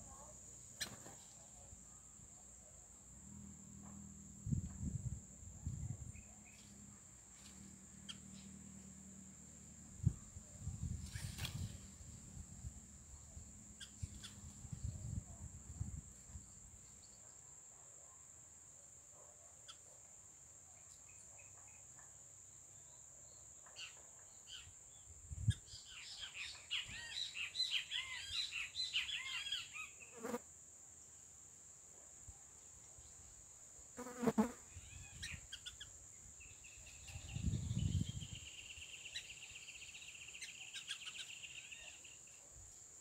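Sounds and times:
songbird twittering chirps: 13.0 - 15.2, 22.8 - 30.2, 34.7 - 42.4.

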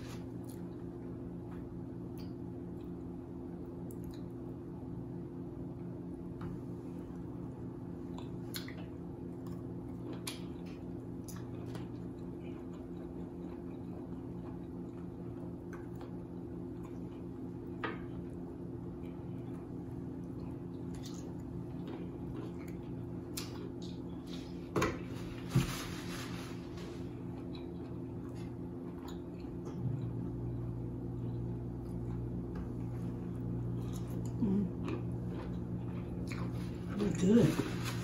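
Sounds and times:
steady low hum: 0.0 - 38.0.

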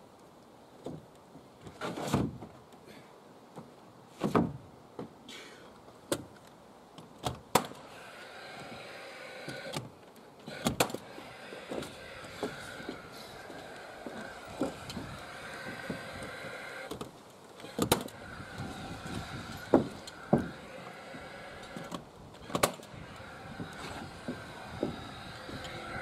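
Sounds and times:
footsteps on wooden boards: 8.5 - 26.0.

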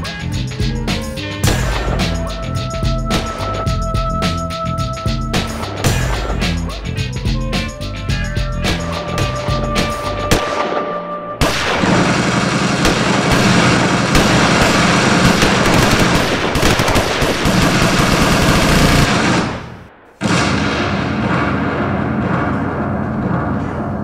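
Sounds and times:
rapid gunfire: 1.4 - 2.3, 9.2 - 23.5.

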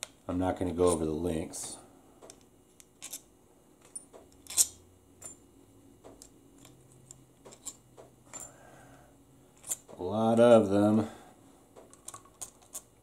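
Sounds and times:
metal bolt clink: 3.8 - 5.4.

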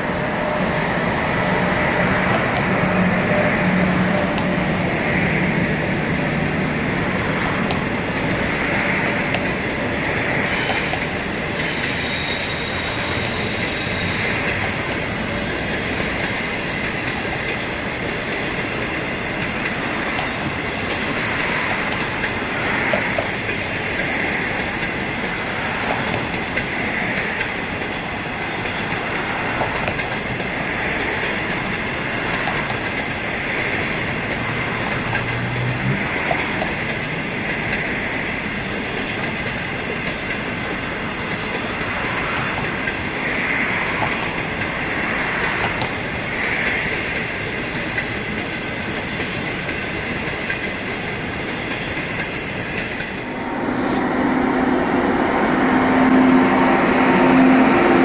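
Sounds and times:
train wheels rumbling on rail: 0.0 - 58.0
faint high wheel squeal: 10.4 - 27.9.

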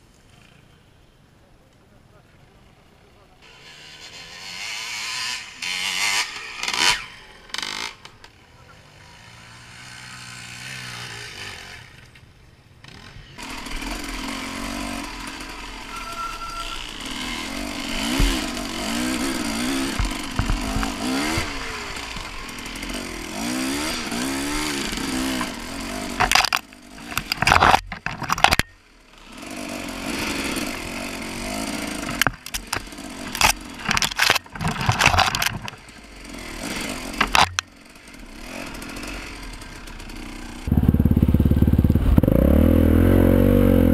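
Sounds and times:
dirt bike engine revving: 3.4 - 8.2, 8.8 - 12.0, 12.8 - 43.9
loud short clattering bursts: 32.0 - 35.9.

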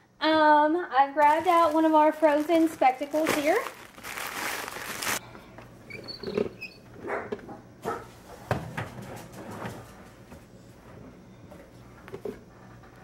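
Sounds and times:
plastic bag crinkling: 1.2 - 5.2
knocks and rustles on a counter: 8.4 - 10.5.

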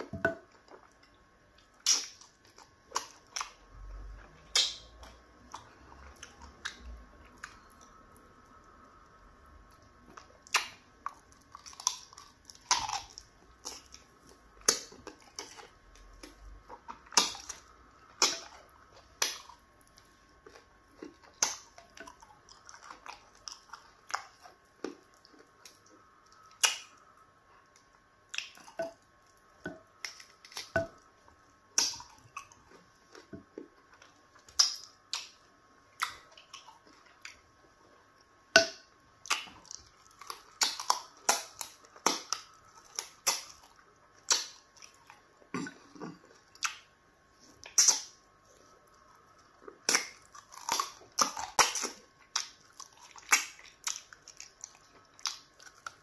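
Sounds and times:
wet smacking and chewing: 0.0 - 38.4, 39.2 - 56.0.

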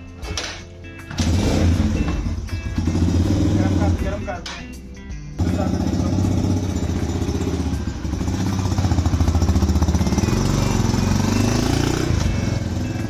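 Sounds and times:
motorcycle engine revving: 1.1 - 4.2, 5.4 - 13.0.

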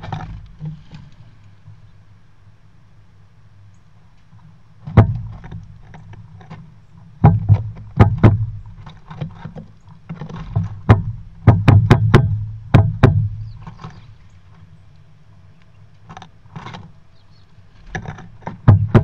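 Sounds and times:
birds pecking on wooden feeder: 4.8 - 19.0.

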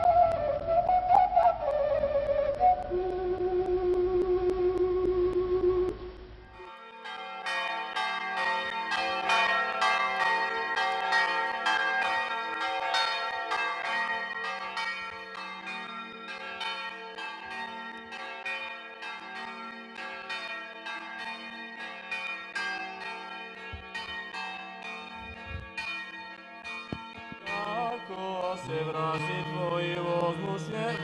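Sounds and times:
flute-like held tone: 0.0 - 6.1
church bells ringing: 6.6 - 31.0.

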